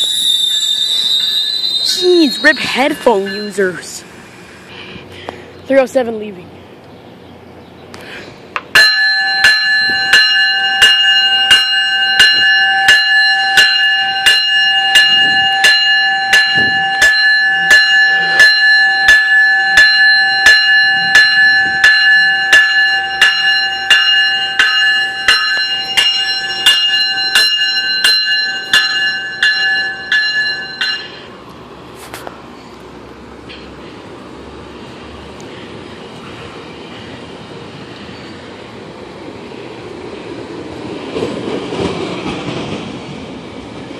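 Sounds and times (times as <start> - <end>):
train bell ringing: 0.0 - 4.2, 8.7 - 31.4.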